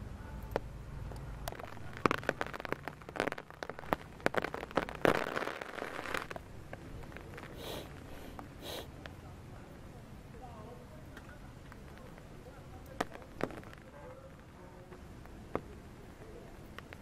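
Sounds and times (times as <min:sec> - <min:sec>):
rain dripping on leaves: 0:00.3 - 0:08.1, 0:11.0 - 0:17.0
leaves rustling: 0:01.5 - 0:08.8.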